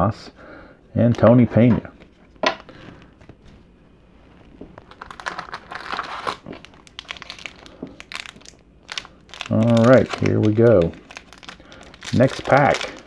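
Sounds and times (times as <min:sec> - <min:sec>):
wax wrapper crinkling: 0:04.4 - 0:13.0.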